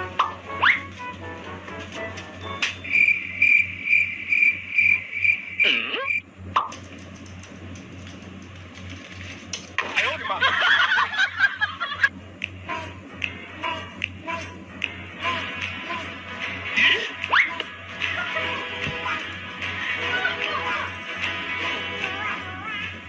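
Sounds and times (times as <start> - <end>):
cricket chirping: 2.4 - 6.2
jumbled burst of higher sound: 2.8 - 6.2.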